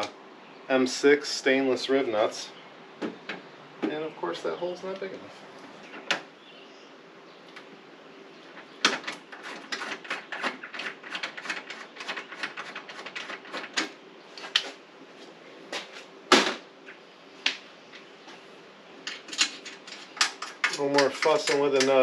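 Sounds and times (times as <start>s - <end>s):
hand tools clicking on metal: 19.1s - 22.0s.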